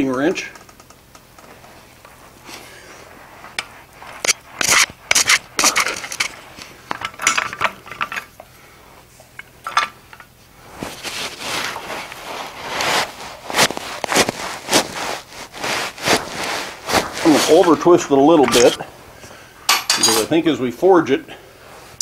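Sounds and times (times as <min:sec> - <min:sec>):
wrench clinking on hot metal: 0:19.7 - 0:20.4.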